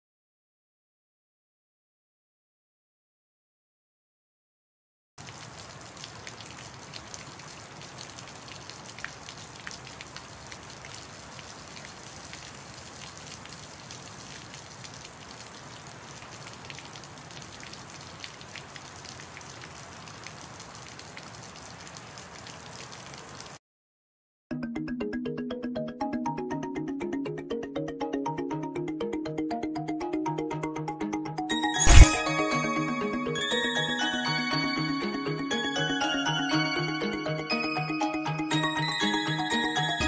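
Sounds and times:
steady rain patter and hiss: 5.2s - 23.6s.

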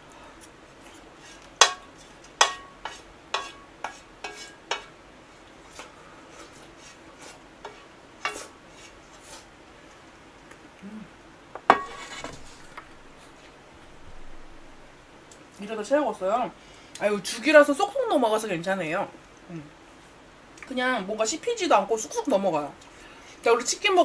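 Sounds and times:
wooden spoon scraping metal pan: 0.9s - 4.9s, 5.6s - 9.5s, 11.7s - 12.7s.

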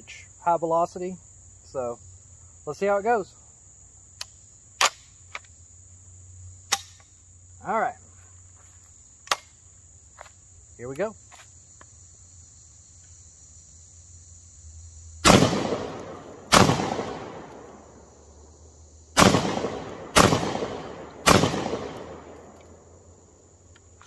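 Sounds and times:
shotgun shots: 15.2s - 17.7s, 19.2s - 22.4s.

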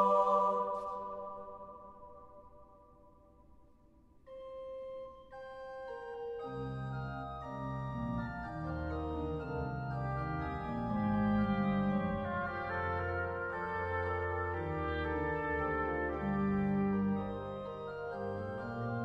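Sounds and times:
organ playing: 6.4s - 19.0s.

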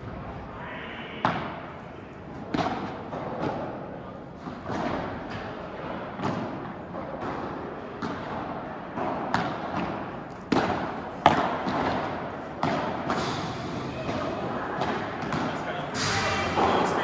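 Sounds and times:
ball struck by rackets: 2.5s - 3.8s, 4.4s - 17.0s
ball bouncing off court walls: 4.4s - 17.0s.

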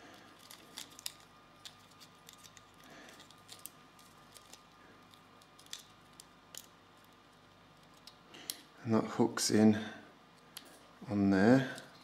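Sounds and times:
small parts clicking and rattling: 0.0s - 8.7s.

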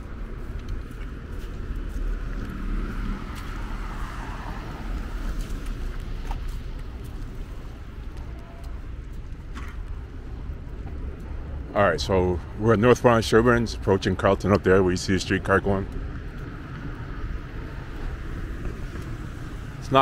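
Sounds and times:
low traffic rumble: 0.0s - 20.0s
car tyres hissing on wet road: 2.5s - 6.7s.

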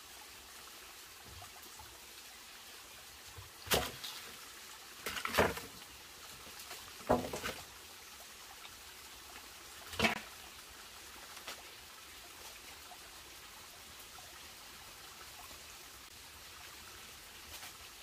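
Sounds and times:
stream trickling: 0.0s - 18.0s
sharp wood knocks: 7.0s - 7.6s.

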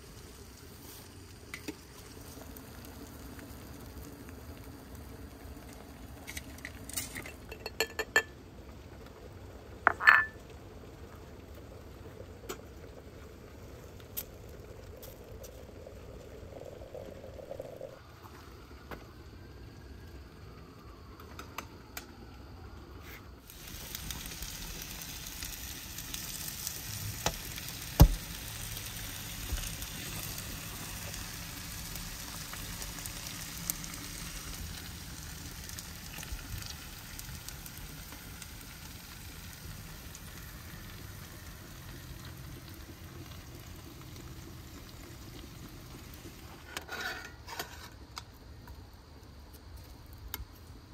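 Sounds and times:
food sizzling in pans: 0.0s - 18.6s, 23.4s - 48.2s
sharp crackles: 23.5s - 41.3s
loud pop: 28.0s - 28.3s.

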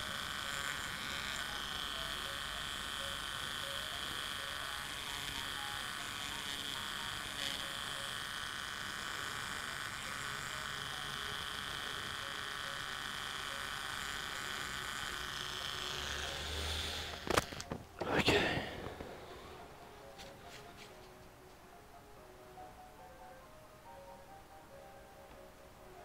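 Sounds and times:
electric grinding tool buzzing: 0.0s - 19.8s.

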